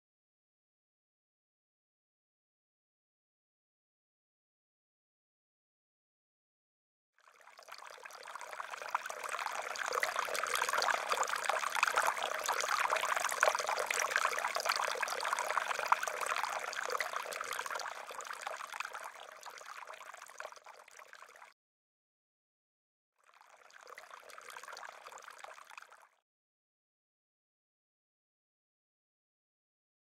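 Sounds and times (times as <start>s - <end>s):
running water trickling: 7.4s - 21.5s.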